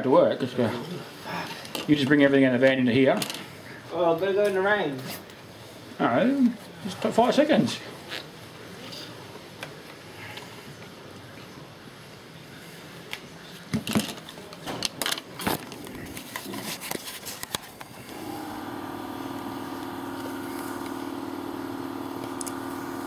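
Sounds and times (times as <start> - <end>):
knocks and scrapes of handling: 13.6 - 17.9
motor hum: 18.0 - 23.0.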